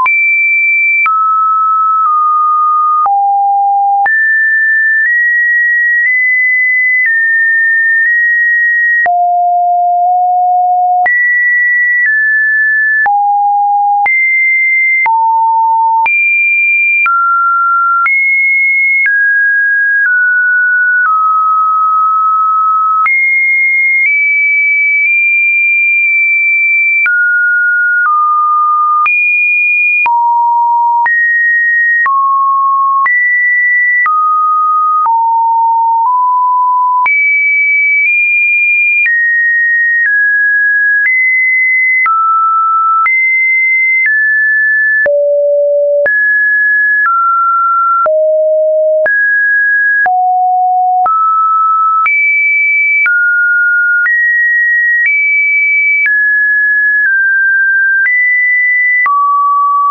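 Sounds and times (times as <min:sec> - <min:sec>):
sine wave tones: 0:00.0 - 0:12.3, 0:13.0 - 0:14.3, 0:45.0 - 0:46.4, 0:47.0 - 0:49.3, 0:50.1 - 0:52.1.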